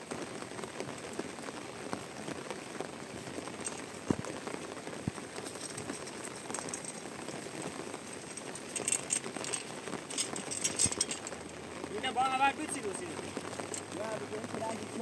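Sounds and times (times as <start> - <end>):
rain patter: 0.0 - 15.0.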